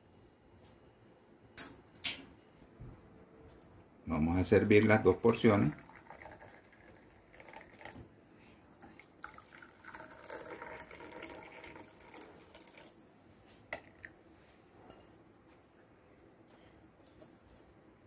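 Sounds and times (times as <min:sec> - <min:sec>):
tea pouring into cups: 0:04.4 - 0:08.1, 0:08.8 - 0:13.0, 0:13.7 - 0:14.2.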